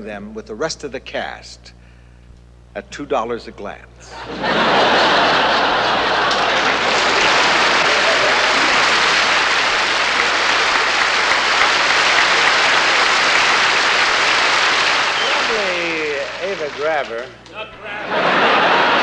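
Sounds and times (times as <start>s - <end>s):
audience laughter: 4.1s - 16.8s, 17.8s - 19.0s
audience applause: 4.2s - 19.0s.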